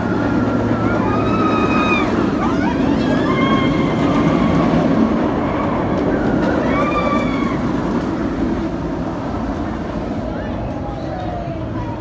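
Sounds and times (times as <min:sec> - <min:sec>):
roller coaster rumbling on track: 0:00.0 - 0:12.0
high held scream: 0:00.8 - 0:04.2.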